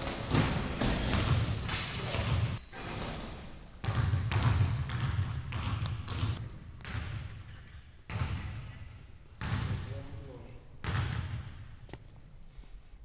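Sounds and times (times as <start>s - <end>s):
basketball bouncing on wooden floor: 0.0s - 2.6s, 3.8s - 7.5s, 8.1s - 8.8s, 9.4s - 9.9s, 10.8s - 11.6s.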